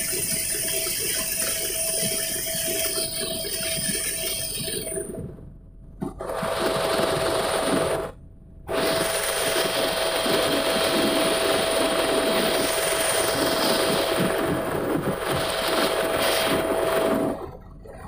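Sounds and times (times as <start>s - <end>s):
helicopter engine and rotor: 0.0s - 5.2s, 6.0s - 17.6s.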